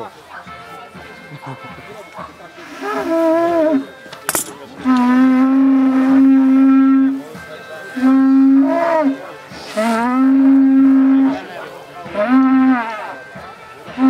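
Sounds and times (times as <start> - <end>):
animal horn blasts: 4.8 - 13.3.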